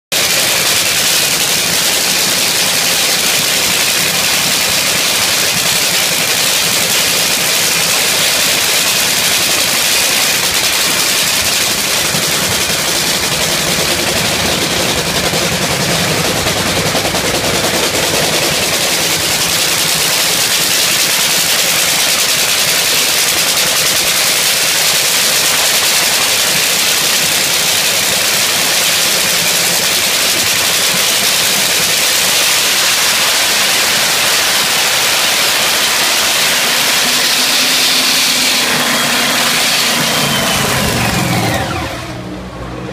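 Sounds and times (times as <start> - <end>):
dragster engine crackling racket: 0.0 - 42.9
falling tone: 32.9 - 42.9.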